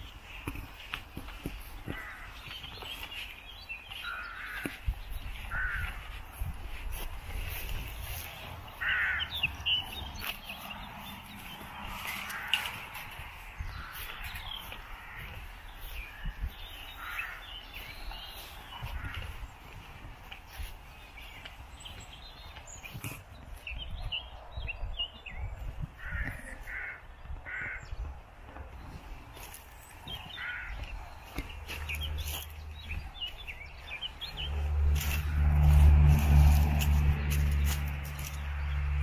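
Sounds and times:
small birds chirping: 0.0s - 39.0s
crow cawing: 1.9s - 2.5s, 4.0s - 4.8s, 5.4s - 6.1s, 8.8s - 9.6s, 12.1s - 12.9s, 13.6s - 16.3s, 17.0s - 17.6s, 18.8s - 19.4s, 26.0s - 28.0s, 30.3s - 31.0s.

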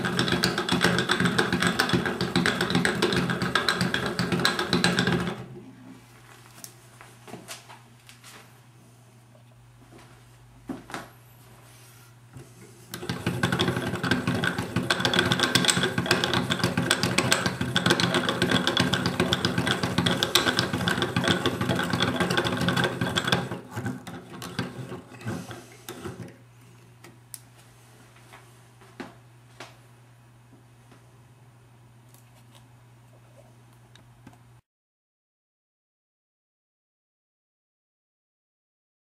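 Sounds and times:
wooden mechanism clattering: 0.0s - 5.4s, 13.0s - 25.1s.

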